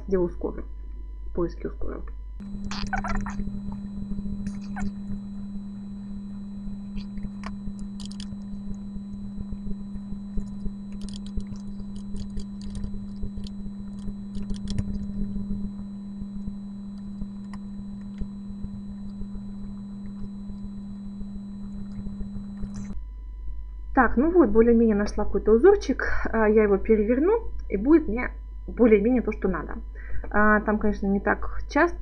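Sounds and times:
low electrical hum: 0.0 - 32.0
mouse and keyboard clicks: 11.0 - 15.0.

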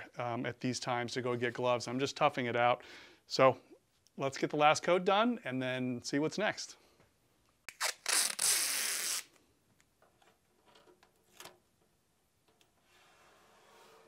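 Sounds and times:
masking tape ripping off roll: 7.7 - 9.4.

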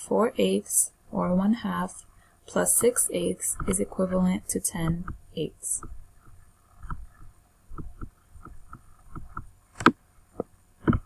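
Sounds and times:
computer mouse clicking: 5.8 - 11.0.

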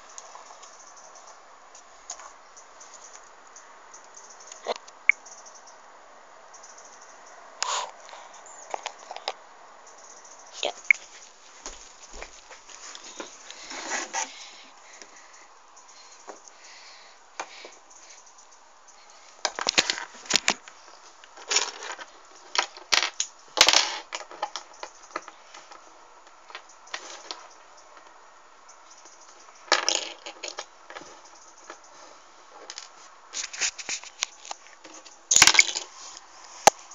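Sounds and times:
fingers scraping and tapping a phone: 33.3 - 36.8.

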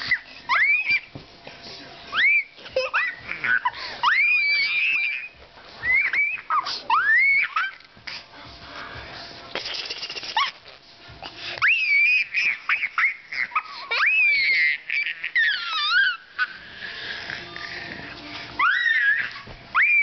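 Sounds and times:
toddler scream-laughing: 2.2 - 7.8, 11.6 - 16.6, 18.6 - 20.0.

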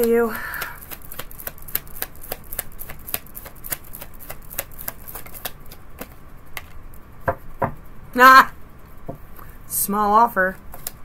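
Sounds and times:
cards being shuffled: 0.0 - 6.8, 10.6 - 11.0.

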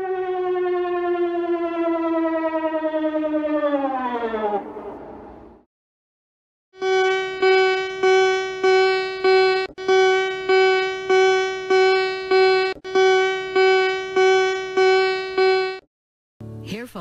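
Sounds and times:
electronic alert tone beeps: 6.8 - 15.8.

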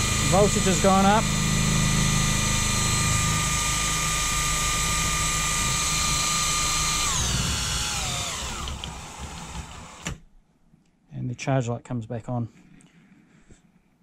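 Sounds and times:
cordless drill whining: 0.0 - 10.2.

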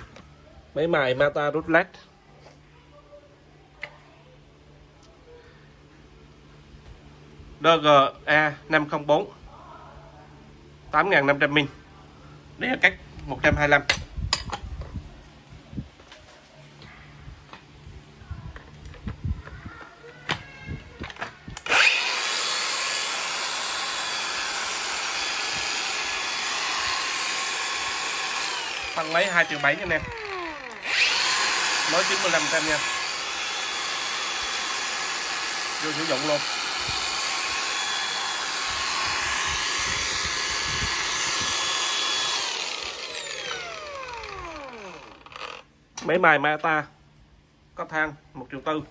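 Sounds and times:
angle grinder motor whine: 21.1 - 45.7.

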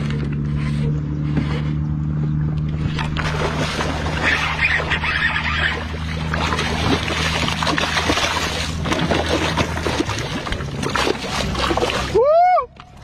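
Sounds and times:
steady low hum: 0.0 - 13.0
fish splashing in water: 2.6 - 13.0.

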